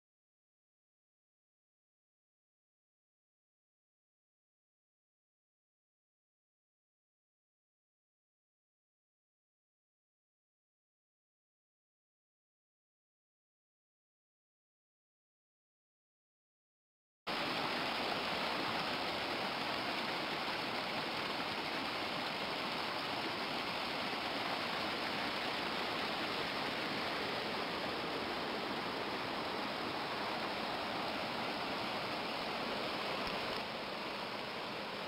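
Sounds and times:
creek rushing over boulders: 17.3s - 35.0s.

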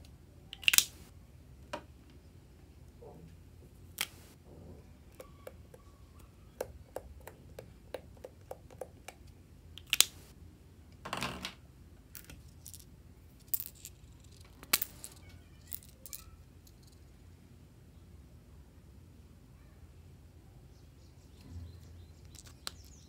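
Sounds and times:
plastic marker clicks and taps: 0.6s - 0.9s, 5.2s - 5.9s, 6.5s - 10.2s, 22.3s - 23.0s.

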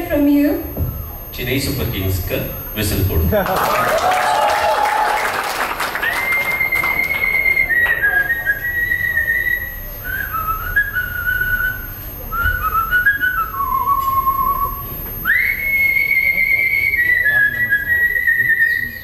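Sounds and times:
applause: 3.4s - 8.1s
woman whistling a melody: 6.0s - 19.0s.

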